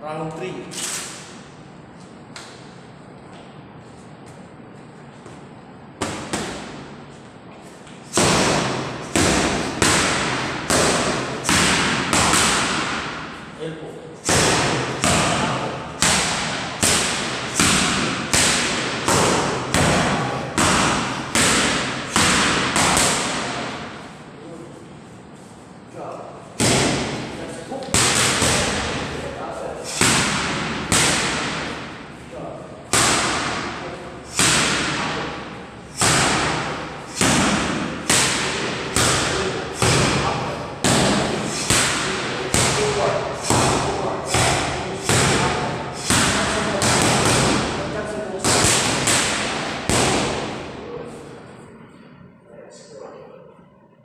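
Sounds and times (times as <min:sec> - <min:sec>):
boxing gloves hitting focus mitts: 0:08.1 - 0:13.3, 0:14.2 - 0:24.0, 0:26.6 - 0:29.1, 0:29.9 - 0:31.8, 0:32.9 - 0:35.3, 0:35.9 - 0:50.7.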